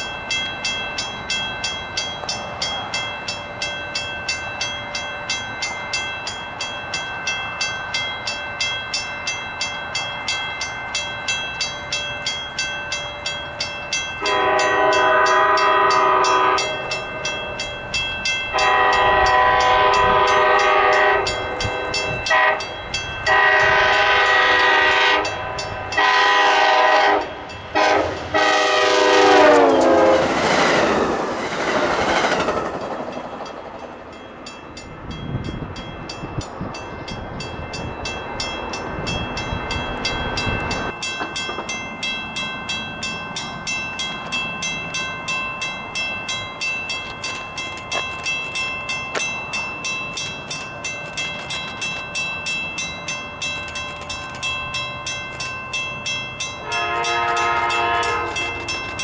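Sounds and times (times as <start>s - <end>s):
bell ringing: 0.0s - 28.6s, 33.2s - 59.0s
train rushing past: 0.0s - 59.0s
locomotive air horn blasts: 14.2s - 16.8s, 18.5s - 30.3s, 56.6s - 58.6s.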